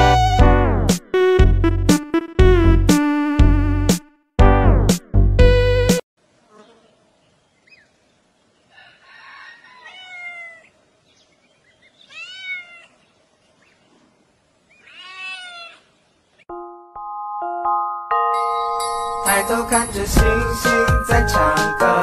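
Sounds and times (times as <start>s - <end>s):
cat meowing: 9.8s - 10.7s, 12.1s - 13.0s, 14.8s - 15.9s.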